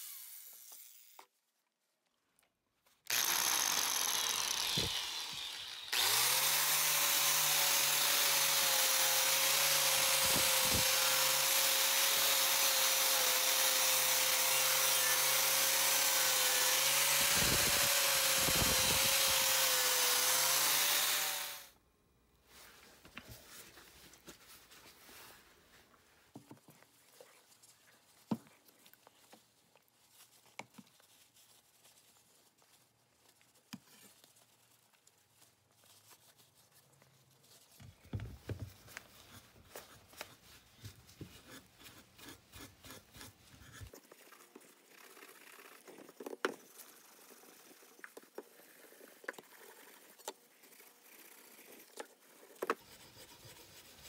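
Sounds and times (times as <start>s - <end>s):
scrubbing wooden handle with pad: 49.5s - 54.0s.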